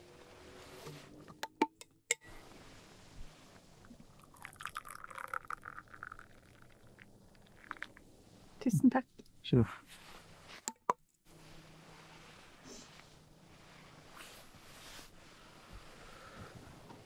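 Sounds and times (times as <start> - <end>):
tea pouring into cup: 4.2 - 8.0.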